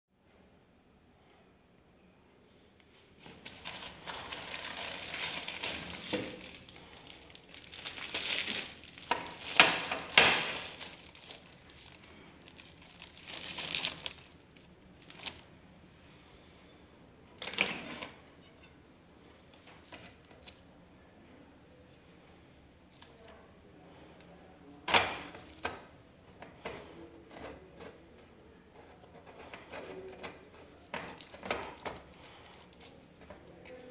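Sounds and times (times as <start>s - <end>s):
plastic film crinkling: 3.2s - 15.6s, 30.7s - 33.9s.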